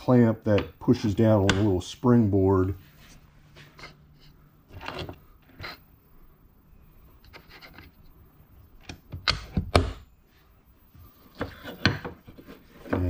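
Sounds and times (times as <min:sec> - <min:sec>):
wooden pieces knocking: 0:11.3 - 0:13.0.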